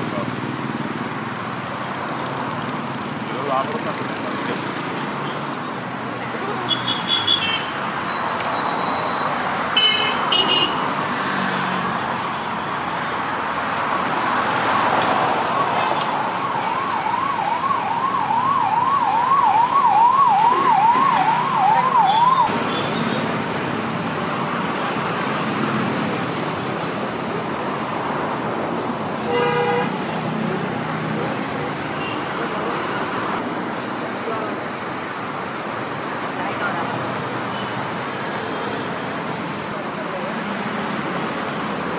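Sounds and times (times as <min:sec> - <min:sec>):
street traffic noise: 0:00.0 - 0:41.9
siren yelping: 0:15.4 - 0:22.5
vehicle horn toots: 0:29.3 - 0:30.0.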